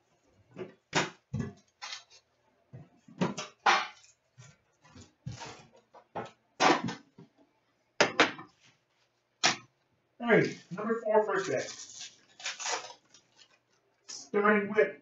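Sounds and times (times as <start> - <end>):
card packs rustling: 10.3 - 13.8.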